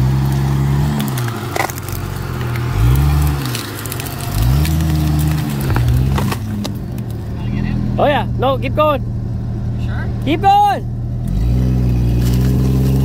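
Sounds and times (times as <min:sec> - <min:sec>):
sharp cracks and crackling: 0:00.0 - 0:07.4
car engine revving: 0:00.0 - 0:13.0.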